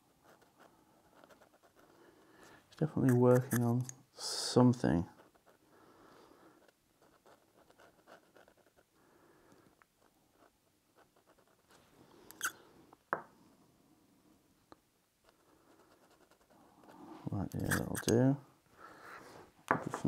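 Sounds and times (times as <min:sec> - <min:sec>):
pen scratching on paper: 0:00.2 - 0:01.9, 0:03.0 - 0:03.7, 0:06.6 - 0:08.9, 0:10.4 - 0:11.8, 0:15.2 - 0:18.2.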